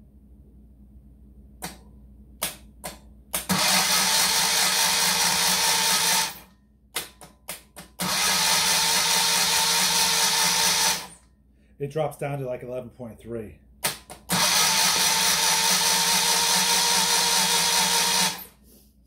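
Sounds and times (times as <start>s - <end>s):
electric starter cranking engine: 3.4s - 6.5s, 8.0s - 11.2s, 13.8s - 18.6s.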